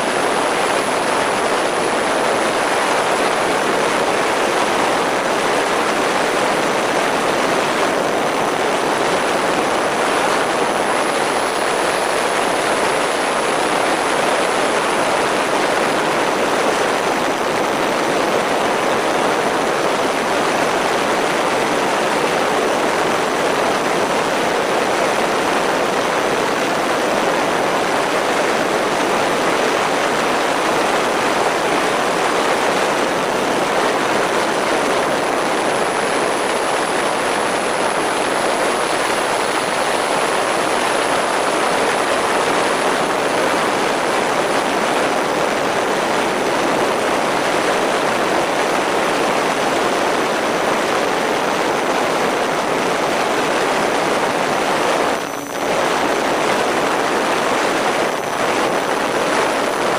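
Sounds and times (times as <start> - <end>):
faint high whine: 0.0 - 59.9
airflow and propellers rushing: 7.6 - 19.9.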